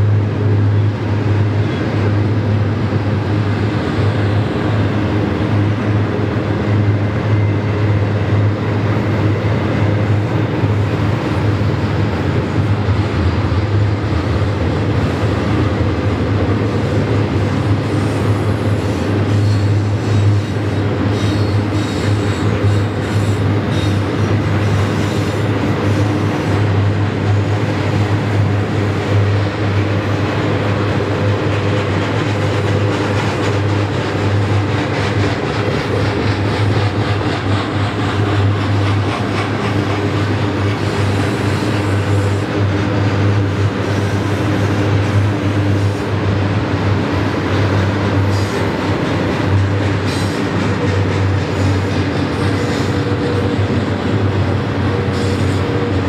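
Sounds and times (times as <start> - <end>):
train wheels rumbling on rails: 0.0 - 56.0
faint high wheel squeal: 18.1 - 24.0.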